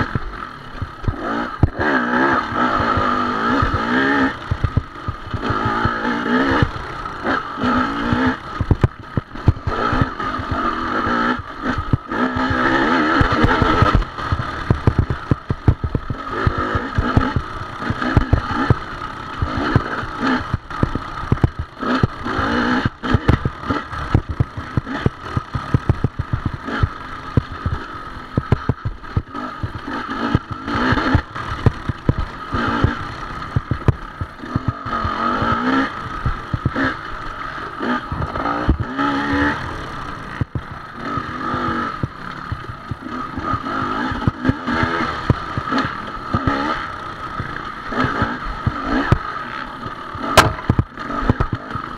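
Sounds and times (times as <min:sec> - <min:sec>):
dirt bike engine revving: 0:00.0 - 0:51.9
knocks and rattles: 0:50.3 - 0:51.7.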